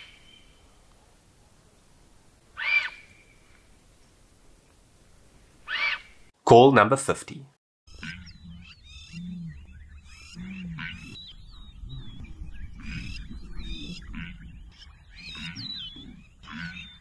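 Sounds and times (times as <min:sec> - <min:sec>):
low arching animal calls: 0:02.6 - 0:03.4, 0:05.6 - 0:06.2, 0:07.9 - 0:17.0
small birds chirping: 0:07.9 - 0:17.0.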